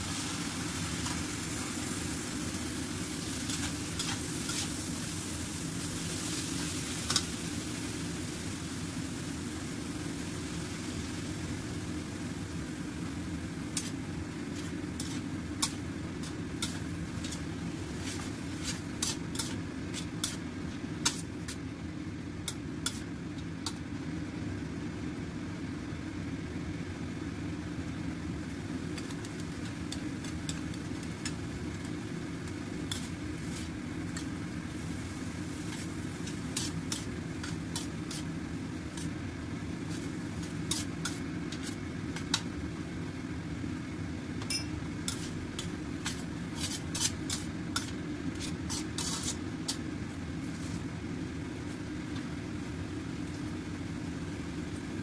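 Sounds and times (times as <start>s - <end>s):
steady low hum: 0.0s - 55.0s
metal spatula scraping a wok: 3.4s - 4.8s, 13.8s - 20.4s, 32.9s - 34.3s, 35.7s - 38.3s, 39.9s - 42.4s, 45.1s - 49.8s.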